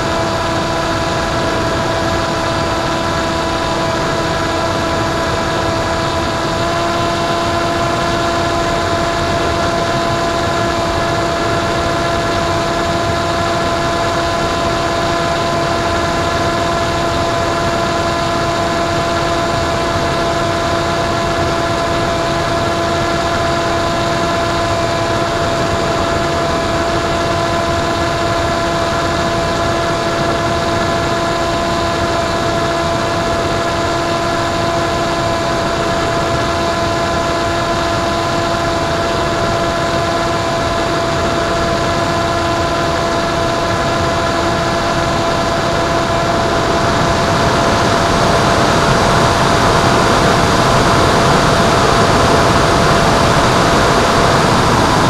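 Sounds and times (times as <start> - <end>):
electric motor and propeller whining: 0.0 - 55.0
wind rushing over microphone: 42.7 - 55.0.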